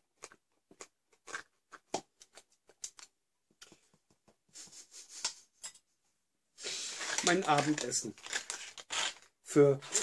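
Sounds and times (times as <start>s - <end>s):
spoon scraping in food pouch: 6.6s - 10.0s
foil pouch crinkling: 6.8s - 10.0s.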